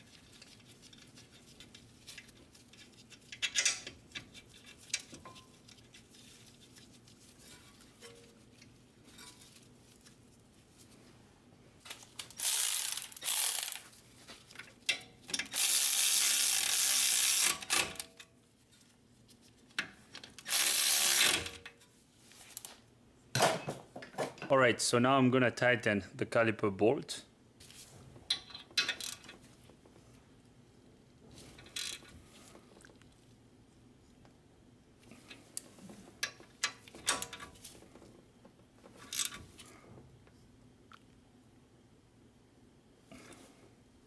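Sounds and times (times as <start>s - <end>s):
pneumatic air ratchet running: 12.4s - 13.8s, 15.5s - 18.0s, 20.5s - 21.6s.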